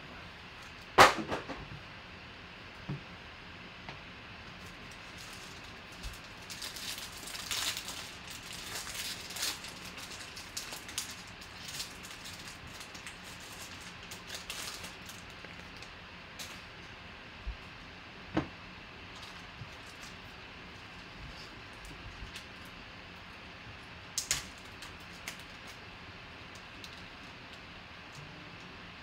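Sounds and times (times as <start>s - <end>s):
foil wrapper crinkling and tearing: 4.6s - 16.7s, 19.1s - 20.4s, 24.1s - 25.9s.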